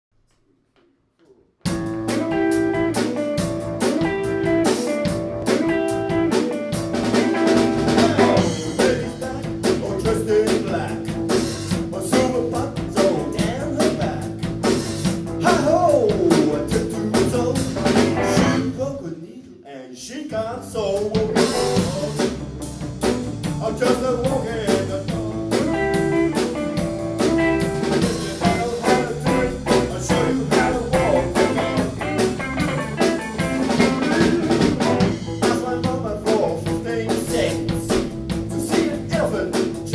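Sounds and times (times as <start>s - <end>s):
blues band playing: 1.6s - 18.9s, 20.8s - 39.9s
man singing: 7.0s - 14.6s, 15.4s - 22.3s, 23.6s - 26.4s, 28.0s - 32.4s, 33.4s - 39.9s.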